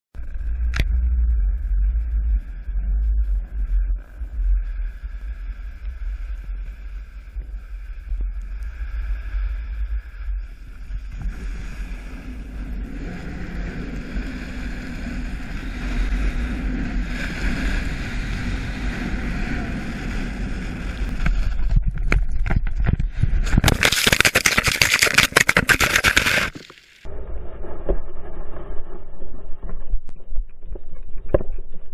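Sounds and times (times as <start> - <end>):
wind rushing over camera: 0.2 - 31.9
snowboard sliding over snow: 5.4 - 21.9, 23.2 - 27.0
camera tumbling through snow: 20.5 - 27.1.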